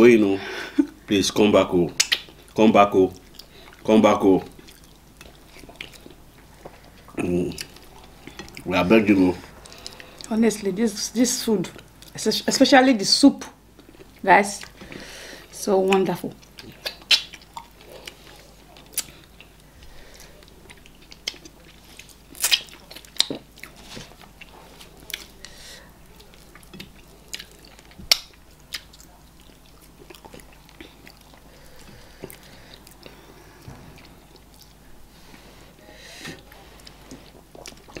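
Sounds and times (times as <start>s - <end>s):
chewing and wet mouth noises: 1.9s - 10.4s, 13.6s - 35.6s, 36.2s - 38.0s
sharp lip smacks: 2.0s - 2.3s, 16.8s - 17.7s.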